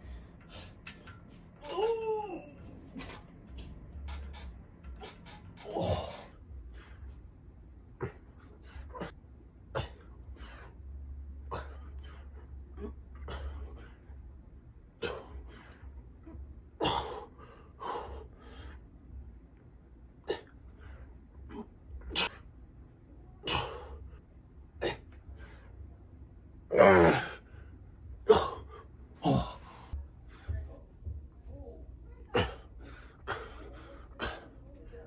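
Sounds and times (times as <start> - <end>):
man grunting: 5.6 - 6.3, 26.7 - 27.4, 28.2 - 29.9.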